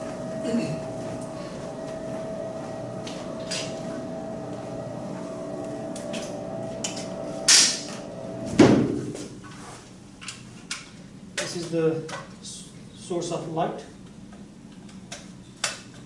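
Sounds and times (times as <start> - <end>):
projection screen motor humming: 0.0 - 9.7.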